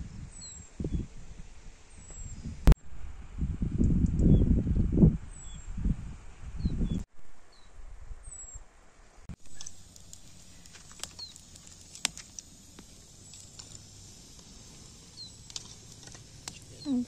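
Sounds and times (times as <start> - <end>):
wood crackling in fire: 9.3 - 17.0
birds chirping: 9.5 - 17.0.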